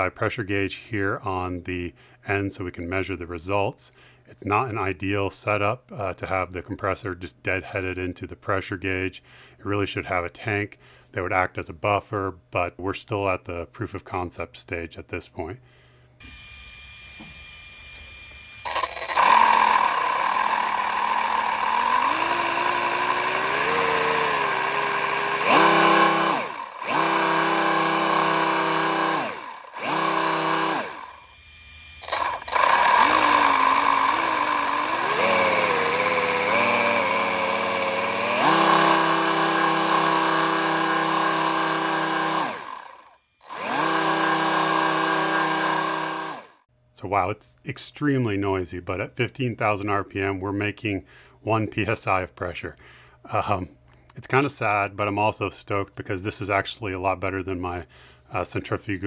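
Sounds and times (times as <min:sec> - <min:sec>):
compressor whining: 0:16.2 - 0:46.6.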